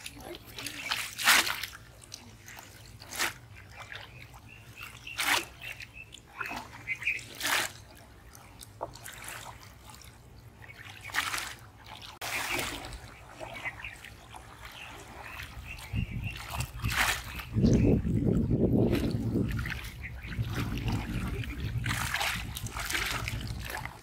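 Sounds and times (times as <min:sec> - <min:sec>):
pond water splashing and trickling: 0:00.0 - 0:24.0.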